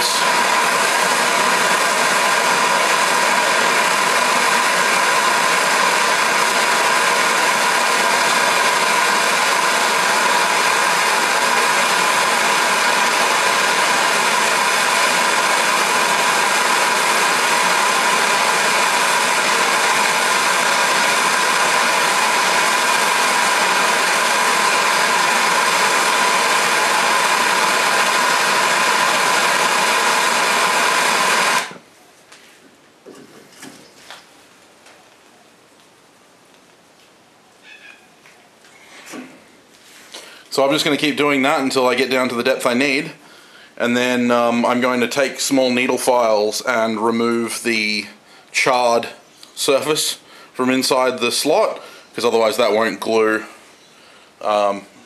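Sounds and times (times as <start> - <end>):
gas torch hissing: 0.0 - 31.8.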